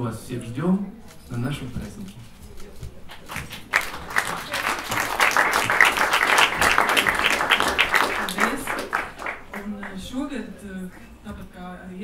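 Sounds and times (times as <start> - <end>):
audience applauding: 3.1 - 10.2.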